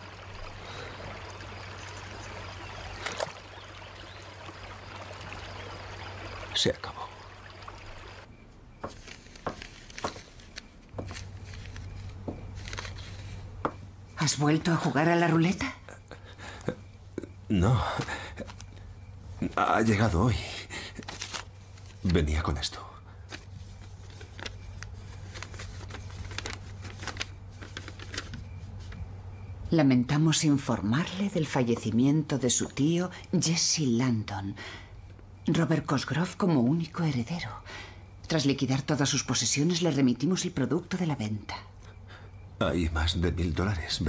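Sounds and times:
low steady room hum: 0.0 - 44.0
paper rustling and crinkling: 8.8 - 13.6, 20.8 - 22.4, 23.2 - 29.1.

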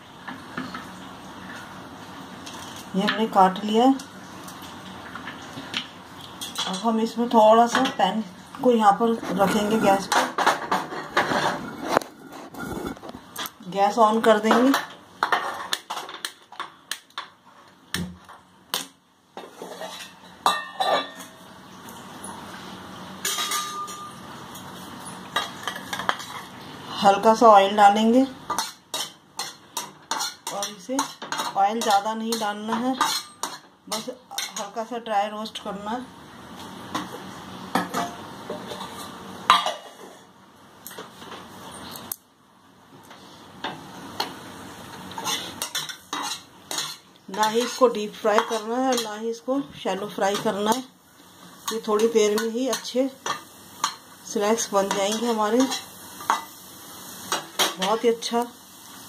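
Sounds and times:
spatula scraping frying pan: 9.0 - 13.5, 19.4 - 21.4, 25.0 - 26.6, 28.5 - 34.8, 38.0 - 40.3, 44.2 - 49.3, 50.0 - 56.6
faint steady hiss: 11.6 - 59.0
metal clinking against pan: 20.4 - 21.3, 23.2 - 24.2.

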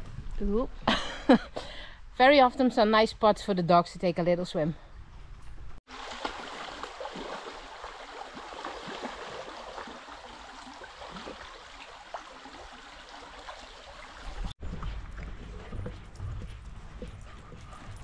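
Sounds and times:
river water babbling: 5.9 - 14.5.

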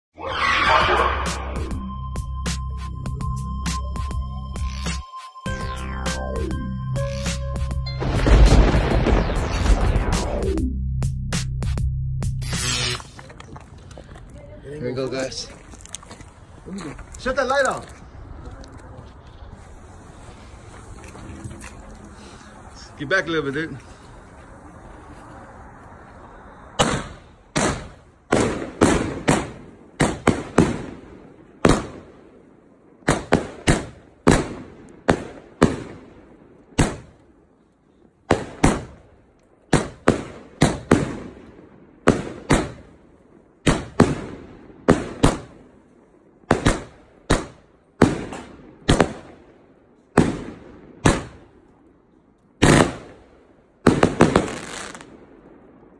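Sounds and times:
firework bangs: 8.0 - 10.5, 26.6 - 37.3, 38.2 - 51.6, 52.6 - 55.9.

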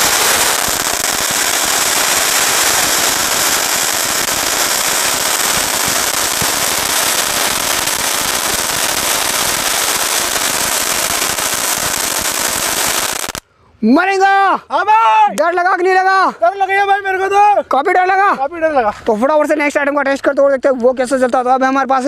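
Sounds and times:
firework crackling: 0.0 - 13.4
firework spark jet hissing: 0.0 - 13.4.

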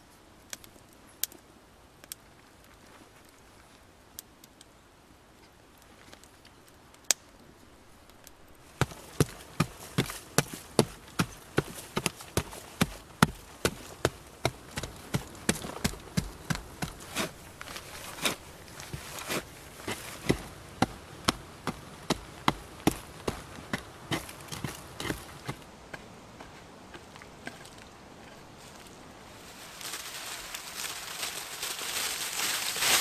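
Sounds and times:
pick chopping into packed earth: 8.8 - 27.8.

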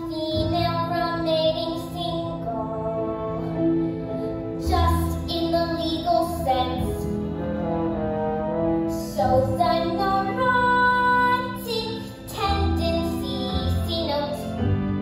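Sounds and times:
girl singing: 0.0 - 3.6, 4.6 - 7.2, 8.9 - 14.6
instrumental accompaniment: 0.0 - 15.0.

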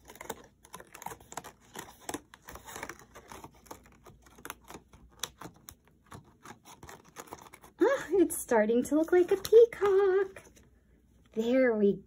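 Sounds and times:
stiff paper crinkling: 0.0 - 8.3.

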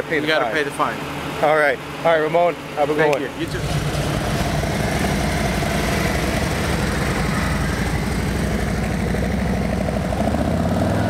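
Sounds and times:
motorcycle engine low rumble: 3.4 - 11.0.

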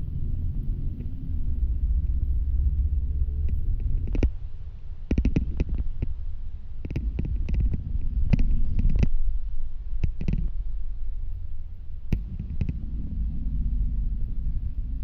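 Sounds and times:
bus rumbling: 0.0 - 5.1, 11.5 - 15.0.

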